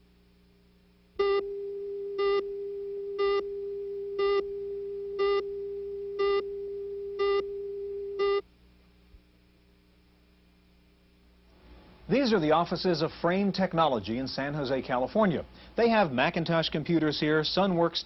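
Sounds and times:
steady pure tone: 0:00.0 - 0:16.4
buzzy electronic beeps: 0:01.2 - 0:08.4.

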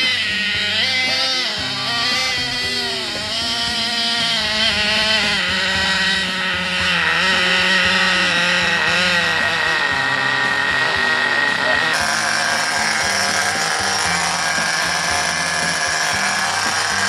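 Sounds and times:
toy snowmobile motor whining: 0:00.0 - 0:17.0.

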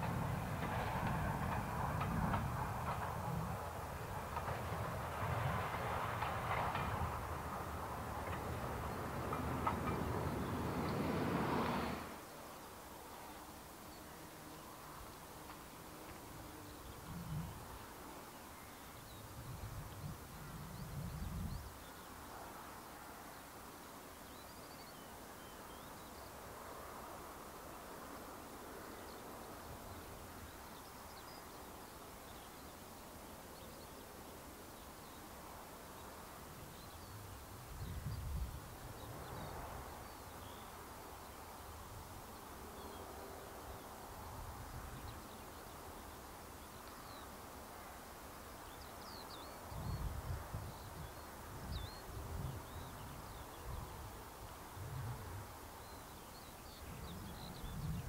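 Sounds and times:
wind buffeting microphone: 0:00.0 - 0:12.1, 0:19.1 - 0:21.7, 0:37.0 - 0:40.1, 0:49.7 - 0:55.5, 0:56.8 - 0:58.0
background hiss: 0:00.0 - 0:58.0.

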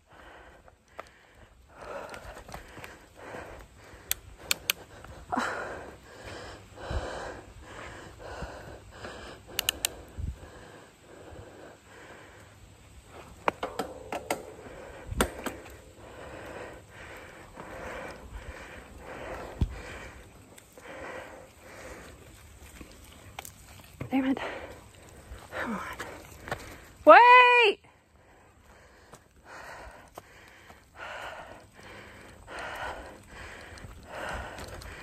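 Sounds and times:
person breathing: 0:00.0 - 0:13.4, 0:14.3 - 0:22.5, 0:24.4 - 0:27.0, 0:27.9 - 0:35.0
bicycle tyres on dirt: 0:00.0 - 0:35.0
bike clicks and rattles: 0:01.8 - 0:05.1, 0:09.5 - 0:10.1.

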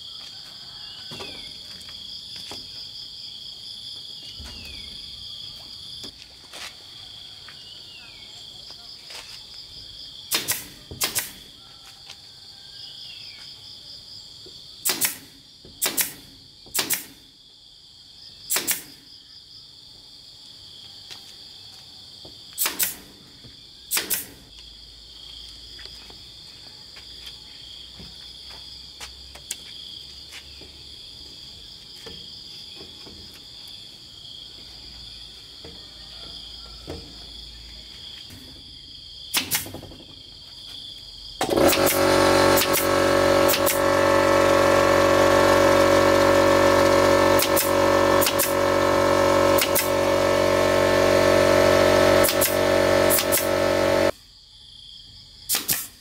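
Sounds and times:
nail gun firing into wood: 0:10.3 - 0:11.5, 0:14.8 - 0:17.2, 0:18.5 - 0:19.0, 0:22.6 - 0:23.2, 0:23.9 - 0:24.5, 0:39.3 - 0:40.0, 0:41.4 - 0:54.1, 0:55.5 - 0:56.0.

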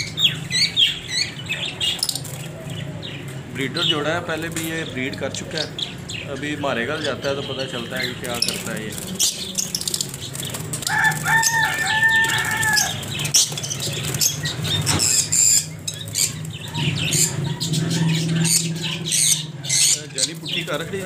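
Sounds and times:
birds flapping wings in cage: 0:01.9 - 0:02.8, 0:08.0 - 0:17.6.

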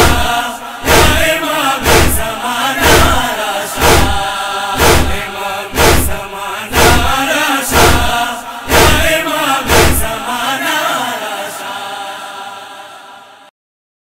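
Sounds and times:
chest-beating thumps: 0:00.0 - 0:10.2
voices chanting a lament: 0:00.0 - 0:13.5.

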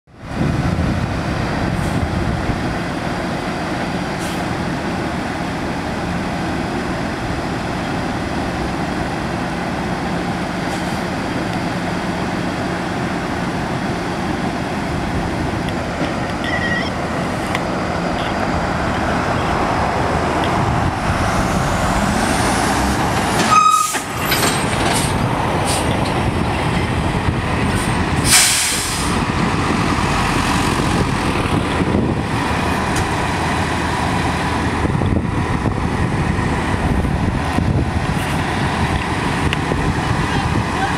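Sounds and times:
tow truck diesel engine: 0:00.1 - 0:40.9
air brake hiss: 0:28.2 - 0:29.1.

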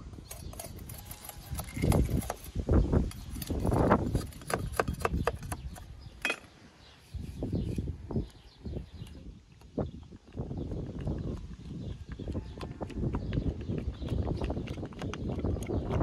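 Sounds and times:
knife scraping wooden stick: 0:00.1 - 0:05.6
sharp wooden knocks and clicks: 0:04.1 - 0:06.5.

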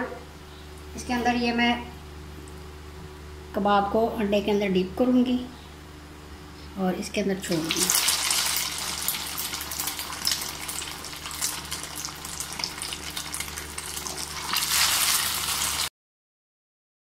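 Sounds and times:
food deep-frying in oil: 0:07.4 - 0:15.9.

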